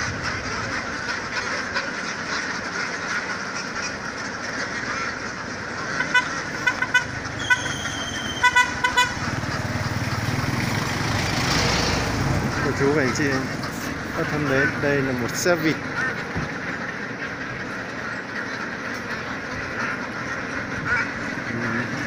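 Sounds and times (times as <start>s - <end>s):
noisy din: 0.0s - 22.0s
vehicle horn beeps: 6.1s - 9.2s.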